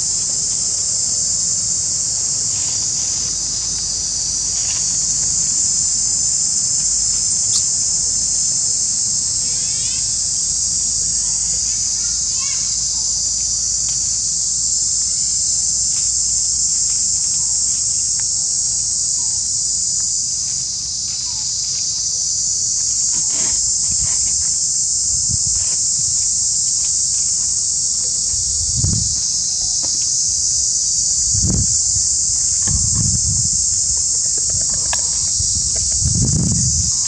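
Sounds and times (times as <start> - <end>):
high-pitched insect chorus: 0.0 - 37.0
dull low thumps: 31.1 - 37.0.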